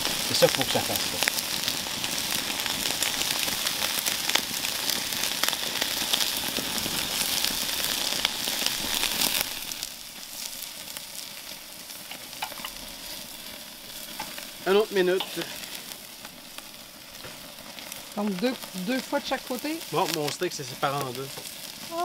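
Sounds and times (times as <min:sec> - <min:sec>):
steaks sizzling on charcoal: 0:00.0 - 0:22.0.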